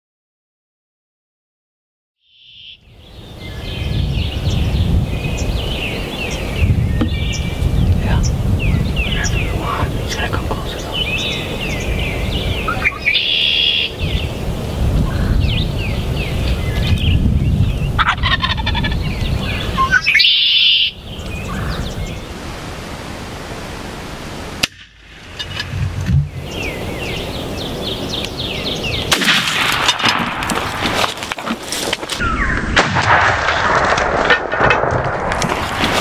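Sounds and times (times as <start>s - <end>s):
songbirds chirping: 2.3s - 32.6s
turkey gobbling: 18.0s - 19.0s.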